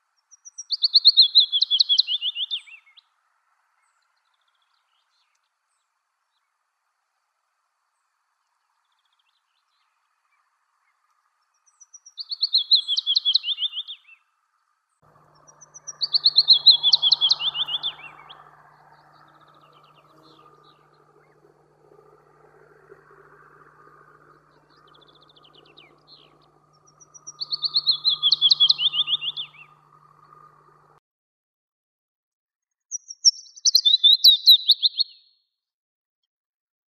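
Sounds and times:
warbler singing: 0.3 - 3.0, 8.8 - 14.2, 15.1 - 31.0, 32.9 - 35.2
faint bird notes: 15.1 - 31.0.

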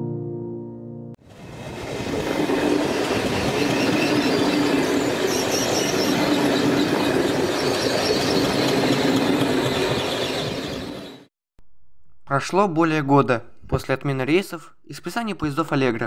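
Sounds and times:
train rumbling along rails: 1.2 - 11.3.

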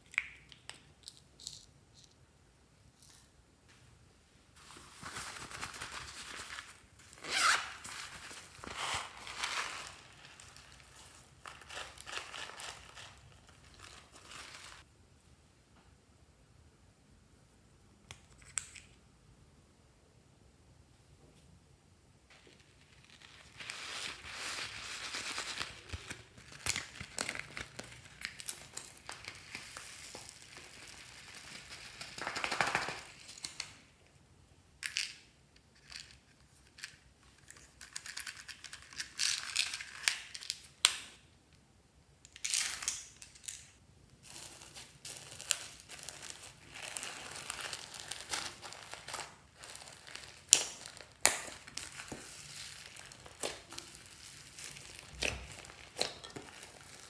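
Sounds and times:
plastic crinkling: 4.6 - 14.9, 22.3 - 33.7, 44.2 - 57.0
squeezing crunchy slime: 44.2 - 57.0.

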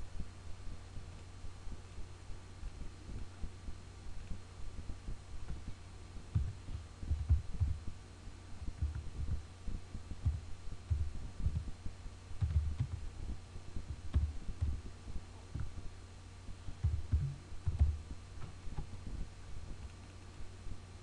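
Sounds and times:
steady low hum: 0.0 - 21.0
computer keyboard keystrokes: 12.4 - 13.1.

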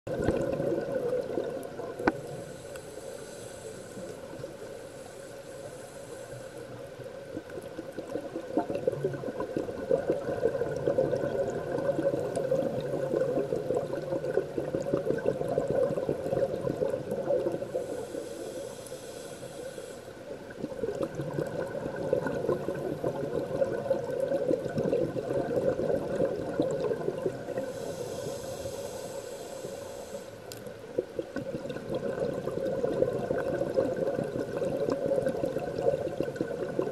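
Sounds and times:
regulator hissing inhalations: 2.1 - 6.8, 17.6 - 20.3, 27.6 - 30.6
exhaust bubbles bubbling: 8.0 - 17.7, 20.7 - 27.6, 31.2 - 36.9.

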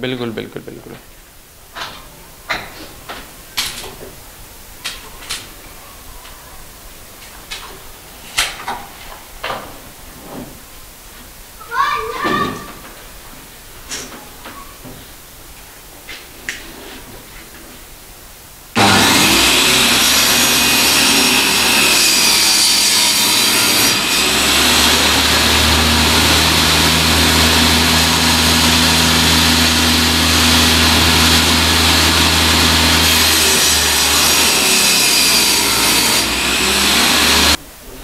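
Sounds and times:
circular saw cutting wood: 18.8 - 37.6
motor hum: 23.9 - 35.0.

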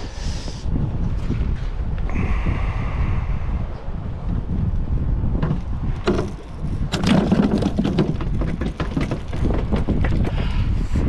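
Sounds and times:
wind buffeting microphone: 0.0 - 11.0
cooler lid knocks and clatter: 5.4 - 10.1.

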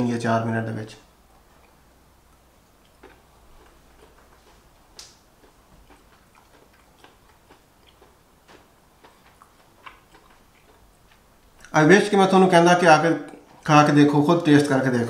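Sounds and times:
person chewing food: 1.3 - 11.8.

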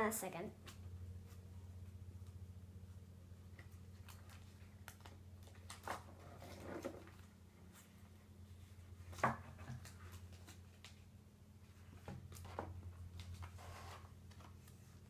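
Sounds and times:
low steady hum: 0.0 - 15.0
card binder clicks and rustles: 3.5 - 6.2.

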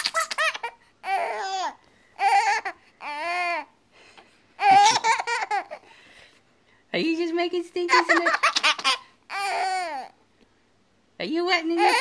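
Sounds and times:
infant squealing laughs: 0.0 - 3.7, 4.6 - 5.8, 7.9 - 10.1, 11.8 - 12.0.

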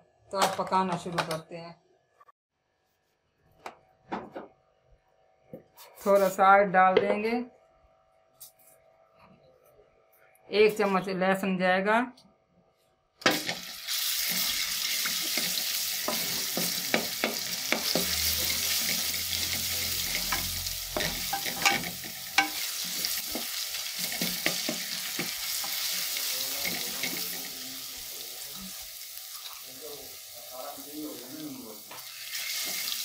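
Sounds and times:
garlic sizzling in hot oil: 13.3 - 33.0
spatula scraping and tapping pot: 15.0 - 19.0, 20.2 - 25.9.

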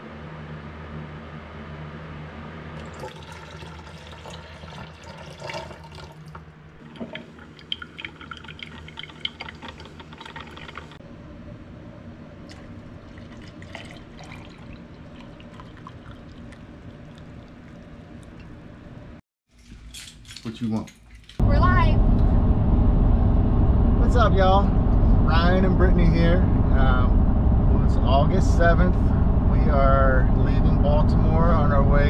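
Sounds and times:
low hum: 0.0 - 5.2, 5.9 - 19.2, 21.3 - 32.0
coffee maker gurgling and dripping: 2.8 - 11.0, 12.5 - 18.6
coffee pouring into flask: 2.8 - 11.0, 12.5 - 18.5.

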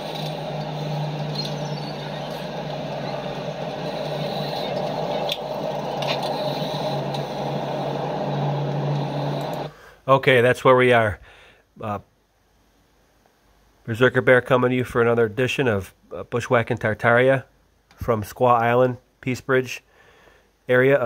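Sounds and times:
low even hum: 0.0 - 10.5
outdoor background noise: 0.0 - 10.7.

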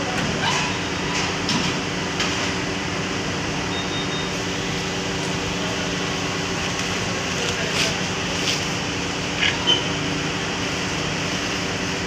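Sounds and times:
embroidery machines humming: 0.0 - 12.0.

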